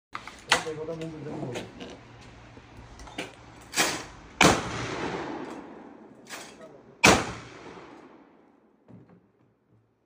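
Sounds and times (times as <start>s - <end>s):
shotgun cracks with echo: 3.8s - 5.9s, 7.0s - 8.4s.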